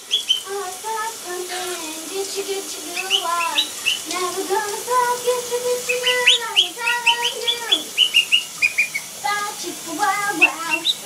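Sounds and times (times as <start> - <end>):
parrot whistling and singing: 0.0 - 0.5, 2.8 - 4.1, 5.6 - 9.1, 10.2 - 11.0.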